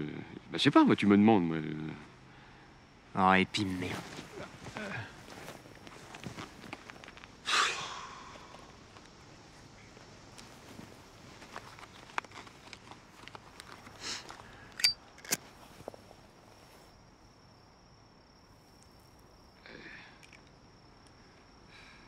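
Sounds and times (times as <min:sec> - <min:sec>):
faint clicks and rustles: 0:03.5 - 0:07.4, 0:08.3 - 0:17.0
lighter lid click and ring: 0:14.8 - 0:15.0.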